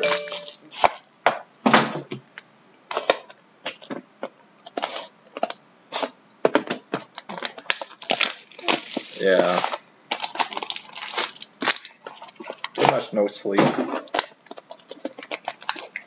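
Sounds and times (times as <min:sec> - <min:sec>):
plastic wrap crackling: 0:07.1 - 0:13.1, 0:14.0 - 0:16.0.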